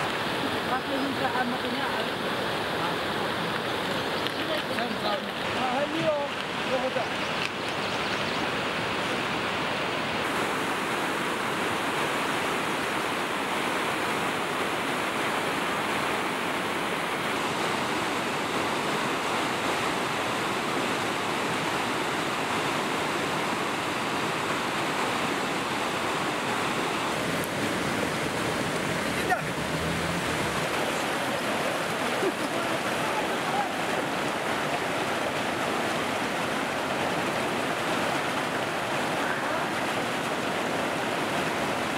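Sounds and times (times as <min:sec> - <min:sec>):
water rushing over rocks: 0:00.0 - 0:41.9.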